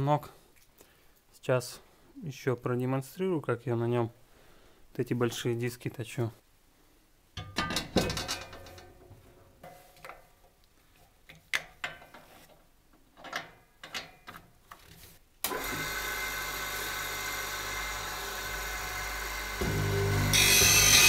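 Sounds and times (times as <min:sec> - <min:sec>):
electric grinder motor running: 0:15.5 - 0:21.0.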